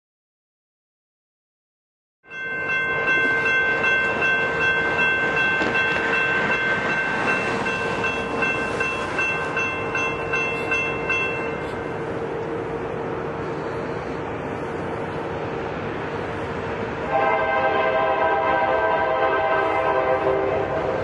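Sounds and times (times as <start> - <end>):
crossing warning bell ringing: 2.2 - 15.2, 17.0 - 21.0
continuous rushing noise: 8.0 - 21.0.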